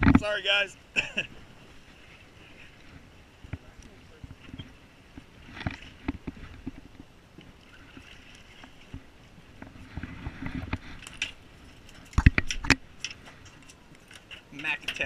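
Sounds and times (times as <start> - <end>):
boat deck noise: 0.0 - 15.0
light clicks and knocks: 9.6 - 15.0.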